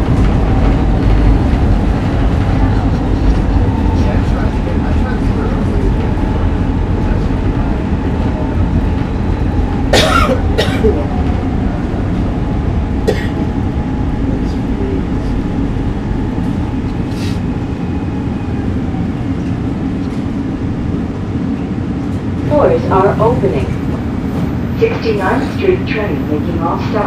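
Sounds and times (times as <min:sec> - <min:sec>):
subway car rumble with faint whine: 0:00.0 - 0:27.0
person coughing: 0:09.9 - 0:11.1, 0:13.1 - 0:13.4.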